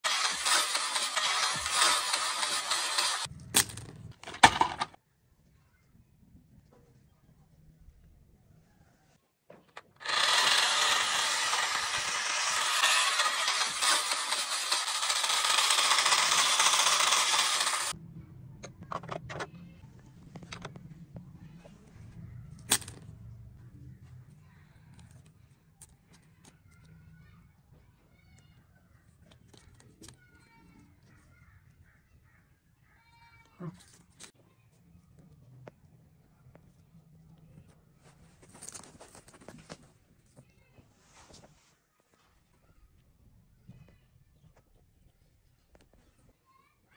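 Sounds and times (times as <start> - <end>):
toy train motor whirring rattle: 0.0 - 3.3, 9.9 - 18.0.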